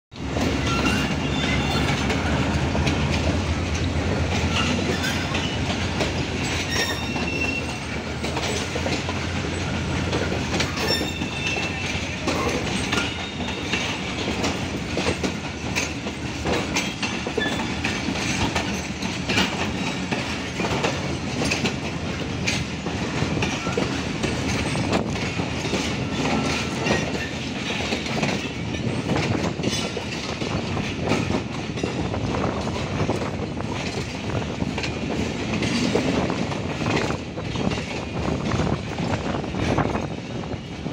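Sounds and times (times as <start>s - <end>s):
train wheels clacking over joints: 0.1s - 40.9s
locomotive engine humming: 0.2s - 29.4s
high wheel squeals: 0.4s - 2.5s, 4.5s - 5.7s, 6.4s - 8.0s, 10.7s - 14.1s, 16.8s - 18.0s.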